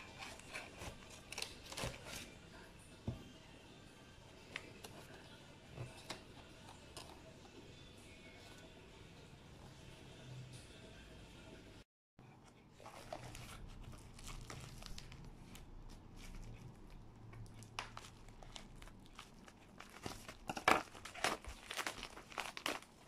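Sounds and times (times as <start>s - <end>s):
plastic crinkling and rustling: 0.0s - 2.4s, 12.8s - 23.0s
scissors cutting plastic bag: 0.0s - 2.4s, 12.8s - 23.0s.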